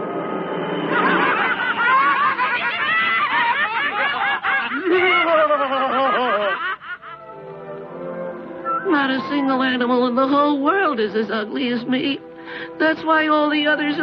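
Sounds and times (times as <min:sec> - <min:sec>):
cartoon voices laughing: 0:00.9 - 0:07.2.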